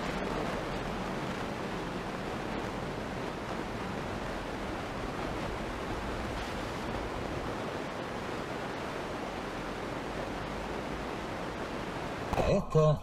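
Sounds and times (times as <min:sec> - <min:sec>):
car road and tyre noise: 0:00.0 - 0:12.5.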